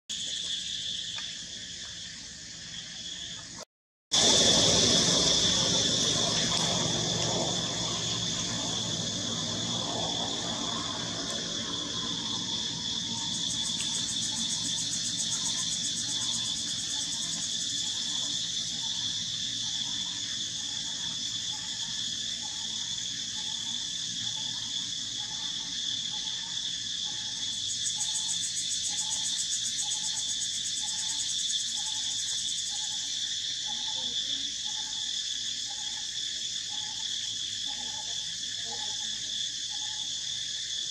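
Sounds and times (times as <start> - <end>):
insects chorus: 0.1 - 40.9
low rumble: 4.2 - 13.3.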